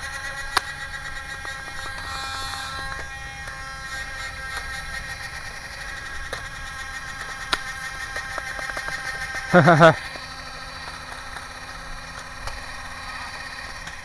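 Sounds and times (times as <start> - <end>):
toy blaster firing click: 0.0 - 9.6
faint multi-tone hum: 0.0 - 14.0.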